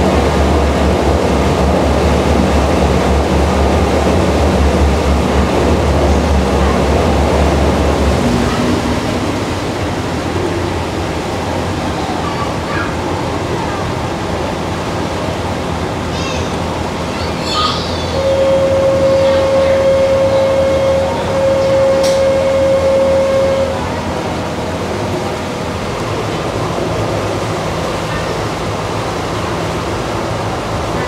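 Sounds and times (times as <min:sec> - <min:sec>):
boat engine hum: 0:00.0 - 0:31.0
water rushing past hull: 0:00.0 - 0:31.0.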